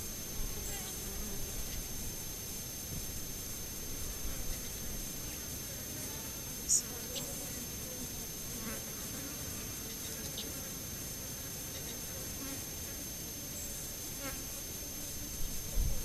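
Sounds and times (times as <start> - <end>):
flying insects buzzing: 0.0 - 16.0.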